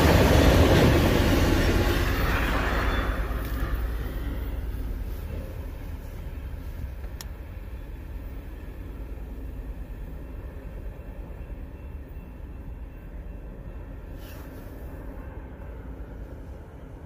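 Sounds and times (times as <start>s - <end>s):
car road and engine rumble: 1.7s - 11.4s.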